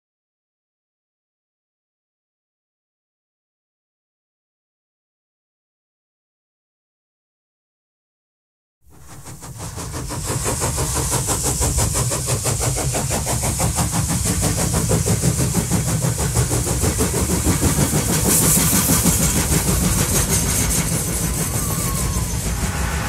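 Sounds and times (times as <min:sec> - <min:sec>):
train wheels rattling and clicking: 0:08.9 - 0:22.9
model train motor whirring: 0:08.9 - 0:23.0.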